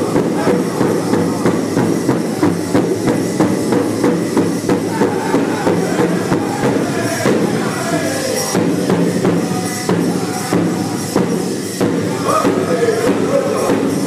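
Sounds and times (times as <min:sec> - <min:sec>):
large drum steady beat: 0:00.0 - 0:14.0
men singing in chorus: 0:04.8 - 0:11.3, 0:12.0 - 0:14.0.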